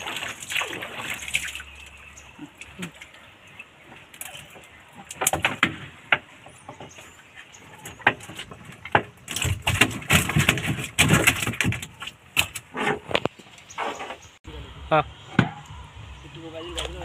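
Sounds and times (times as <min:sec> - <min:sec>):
knocks and thumps in boat hull: 0:07.8 - 0:13.2.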